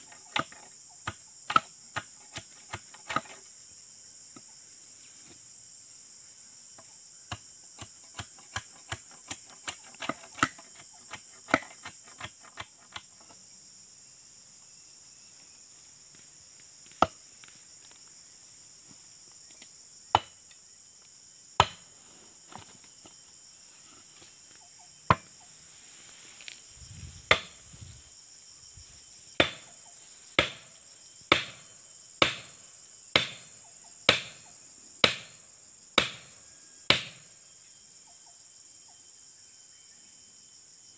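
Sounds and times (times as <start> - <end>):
high insect drone: 0.0 - 40.9
chisel knocked onto wooden pole: 29.4 - 29.6.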